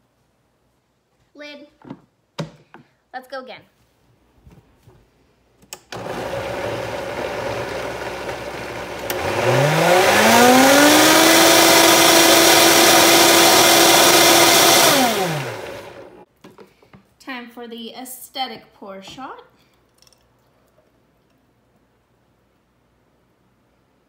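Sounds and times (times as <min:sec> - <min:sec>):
blender running: 0:05.9 - 0:16.2.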